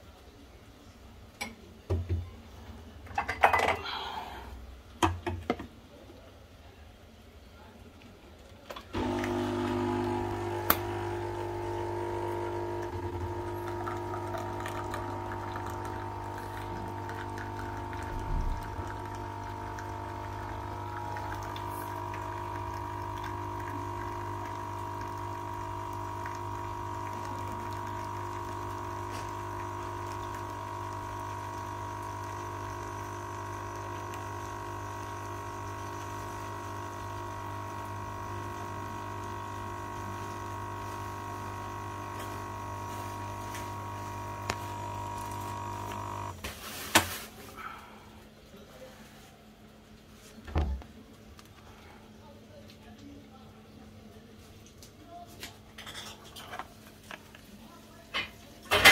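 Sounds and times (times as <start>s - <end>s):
coffee pouring into a mug: 7.9s - 46.4s
coffee machine pump humming: 8.6s - 58.9s.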